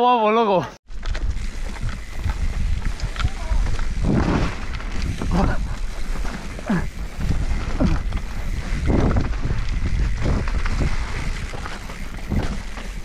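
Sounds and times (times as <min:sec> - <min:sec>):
mountain bike rumbling and rattling: 0:00.9 - 0:13.0
wind buffeting microphone: 0:00.9 - 0:13.0.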